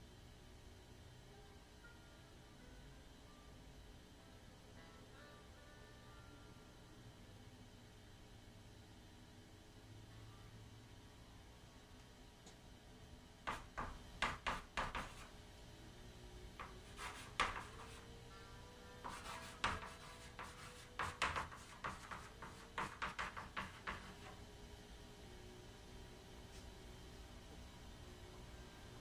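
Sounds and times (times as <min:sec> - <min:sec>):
chalk scratching on chalkboard: 0:13.5 - 0:15.3, 0:16.6 - 0:18.1, 0:19.0 - 0:24.4.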